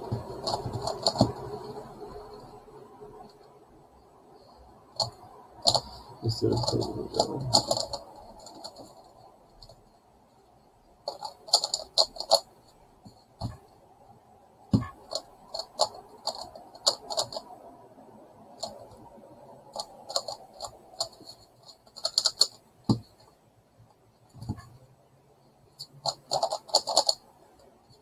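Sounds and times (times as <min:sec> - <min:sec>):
rapid plastic puzzle clicks: 0:00.0 - 0:02.4, 0:05.0 - 0:09.8, 0:11.1 - 0:12.5, 0:14.7 - 0:17.6, 0:18.5 - 0:23.3, 0:25.8 - 0:28.0.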